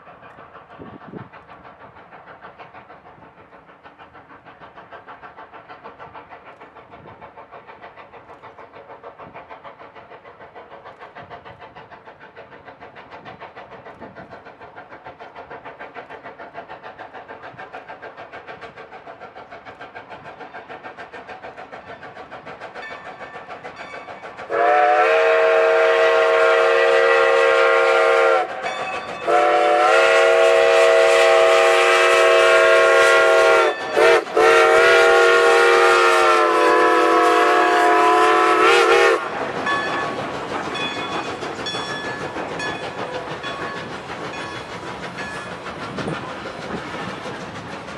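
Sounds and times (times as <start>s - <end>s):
steam locomotive exhaust beating: 0.0s - 47.9s
chime-toned steam whistle: 24.5s - 40.2s.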